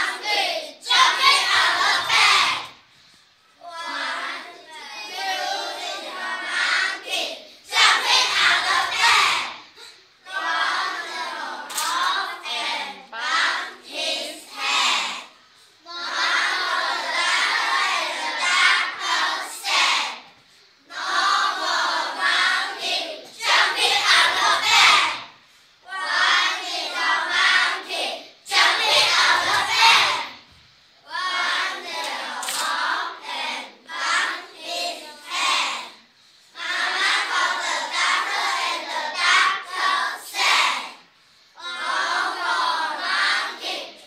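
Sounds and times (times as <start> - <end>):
children singing in unison: 0.0 - 2.8, 3.6 - 44.0.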